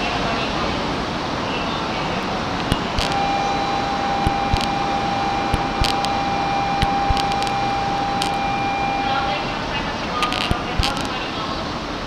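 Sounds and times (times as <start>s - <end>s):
train hum and hiss: 0.0s - 12.0s
steady high tone: 2.2s - 11.2s.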